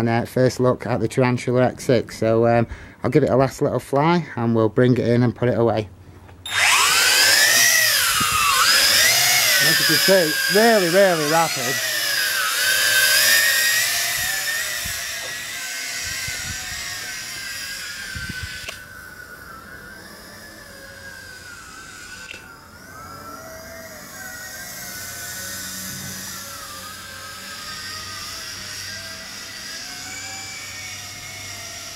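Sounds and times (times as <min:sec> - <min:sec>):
drone propellers whining: 0:06.4 - 0:31.9.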